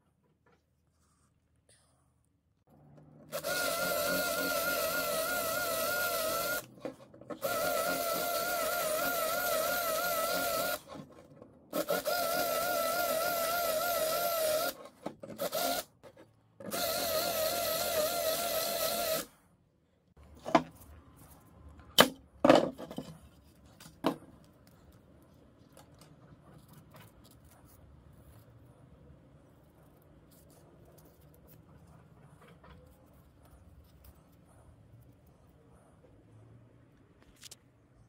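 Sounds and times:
cordless drill drilling metal: 0:03.3 - 0:06.7, 0:07.4 - 0:10.9, 0:11.8 - 0:14.8, 0:15.4 - 0:15.9, 0:16.7 - 0:19.3.

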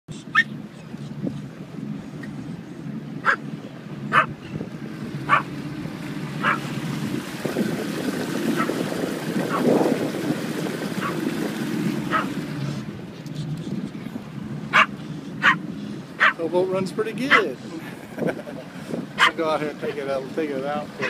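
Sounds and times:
boat wake rushing: 0:00.1 - 0:21.0
outboard motor running: 0:00.2 - 0:21.0
dog barking: 0:04.1 - 0:04.3, 0:05.3 - 0:05.5, 0:06.4 - 0:06.6, 0:12.1 - 0:12.3, 0:14.7 - 0:15.6, 0:16.2 - 0:16.4, 0:19.2 - 0:19.4.

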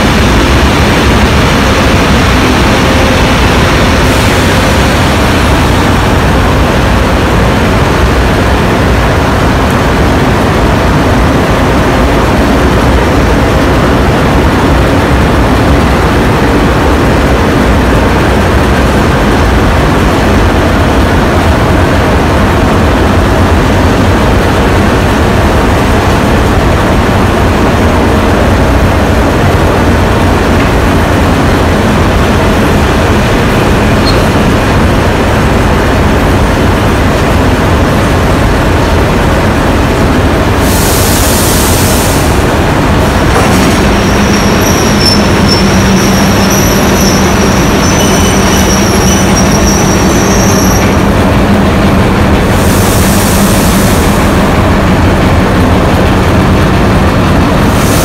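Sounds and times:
diesel locomotive engines rumbling: 0:00.0 - 0:58.0
high wheel squeal: 0:43.9 - 0:51.0.

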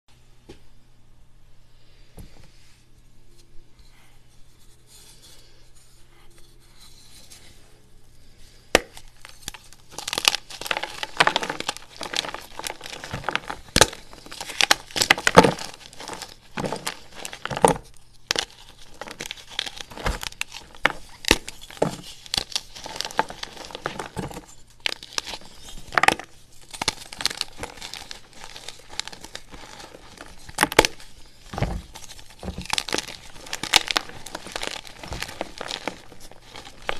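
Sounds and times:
chalk cracking and crunching: 0:08.6 - 0:36.9.

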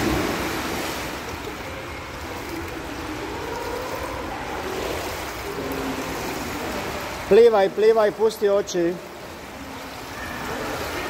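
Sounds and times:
splash into swimming pool: 0:00.0 - 0:01.5
water sloshing in indoor pool: 0:00.0 - 0:11.0.

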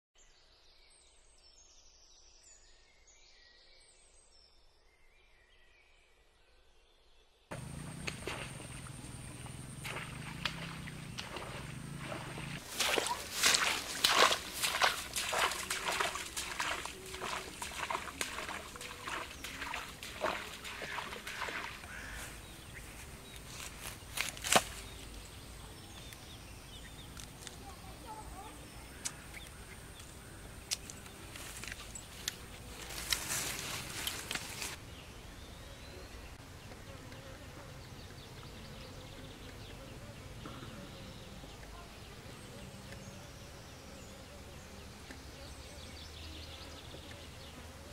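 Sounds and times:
small splashes: 0:07.5 - 0:22.4
insect buzzing: 0:07.5 - 0:24.9
footsteps through wet grass: 0:07.5 - 0:25.2, 0:30.7 - 0:34.8
outdoor background hiss: 0:07.5 - 0:47.9.

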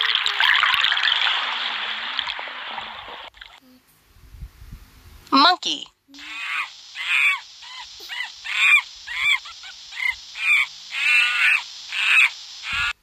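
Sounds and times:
monkey calls: 0:06.1 - 0:13.0.

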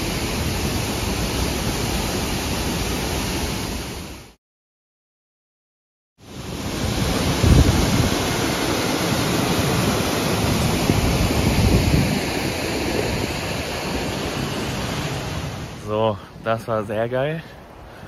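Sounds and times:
waterfall rushing: 0:00.0 - 0:04.4, 0:06.3 - 0:16.0.

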